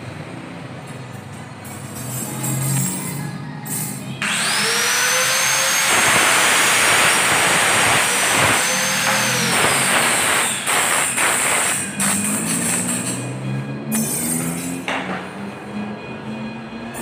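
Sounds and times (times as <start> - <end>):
power tool whining: 4.2 - 13.0.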